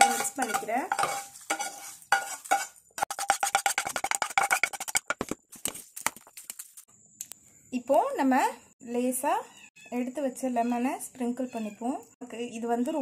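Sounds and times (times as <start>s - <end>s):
metal spatula scraping a bowl: 0.0s - 5.2s.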